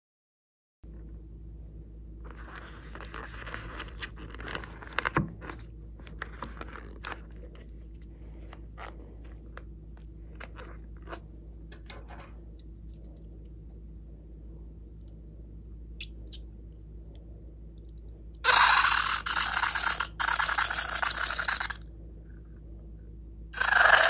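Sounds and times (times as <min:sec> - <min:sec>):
rubber balloon squeezed and rubbed: 0:18.4 - 0:21.8.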